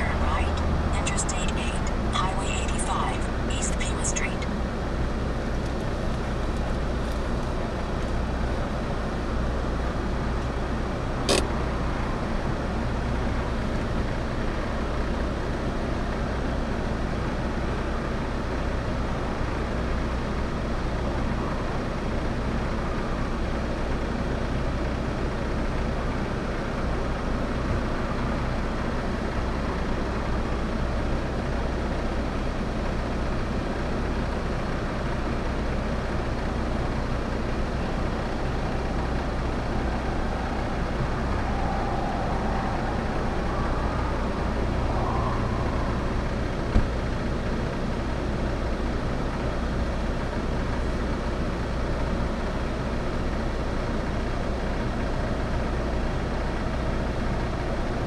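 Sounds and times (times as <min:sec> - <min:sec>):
car engine idling: 0:19.2 - 0:58.0.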